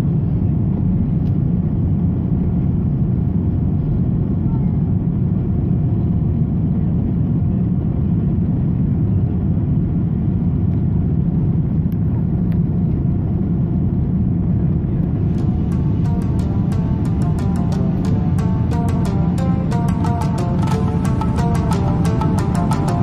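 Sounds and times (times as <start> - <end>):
jet cabin engine roar: 0.0 - 23.0
music: 15.1 - 23.0.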